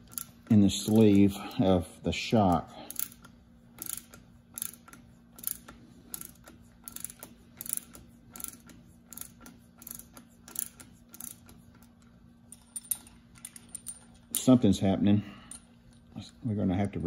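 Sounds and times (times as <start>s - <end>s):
ratcheting wrench clicking: 0.0s - 1.2s, 2.9s - 12.0s.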